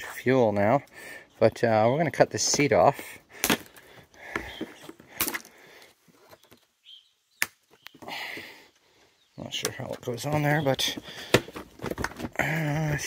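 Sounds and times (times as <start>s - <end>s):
handling rustle: 9.8s - 13.0s.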